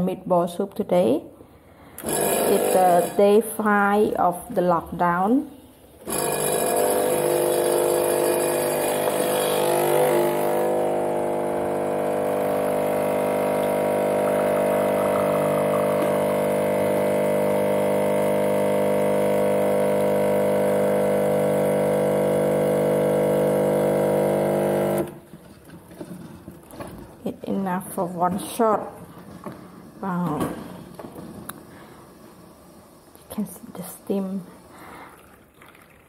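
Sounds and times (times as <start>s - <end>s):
espresso machine pump humming: 2.0s - 3.4s, 6.0s - 25.2s.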